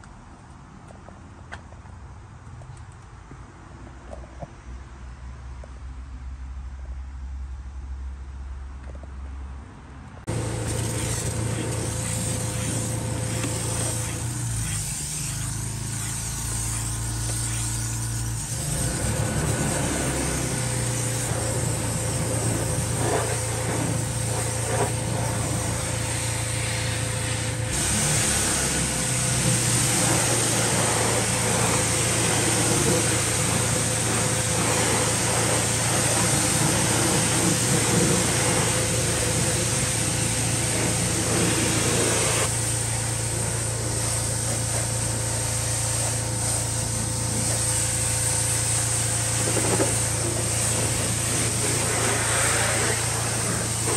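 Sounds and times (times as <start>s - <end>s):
pressure washer engine running: 10.3s - 53.9s
water spray hissing on wheel: 10.3s - 53.9s.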